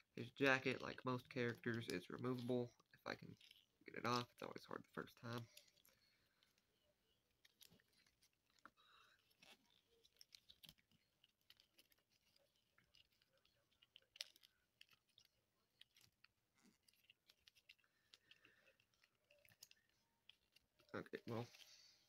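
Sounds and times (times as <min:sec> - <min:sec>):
plastic toy clicks and handling: 0:01.0 - 0:04.5.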